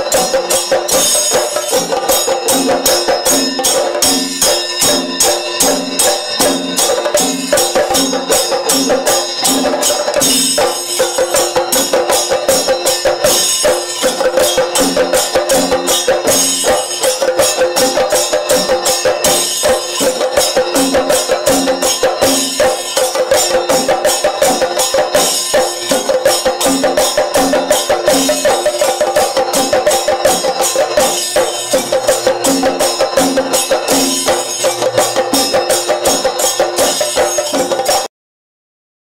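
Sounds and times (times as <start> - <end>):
drums beaten rapidly with sticks: 0.0 - 38.1
hand cymbals clashing: 0.0 - 38.1.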